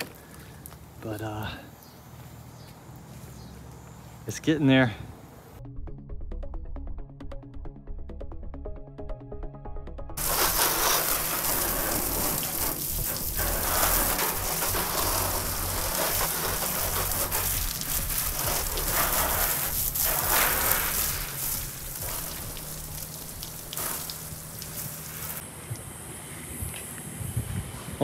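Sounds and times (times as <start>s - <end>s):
low hum: 10.1s - 25.4s
pressure washer spraying: 10.2s - 25.4s.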